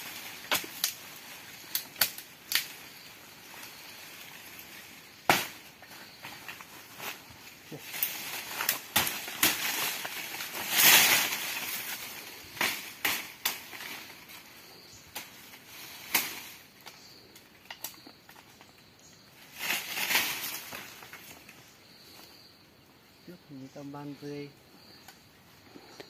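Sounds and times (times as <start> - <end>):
dry twigs snapping: 0.0 - 5.6, 6.2 - 14.4, 15.1 - 18.7
leaves rustling: 0.0 - 22.5.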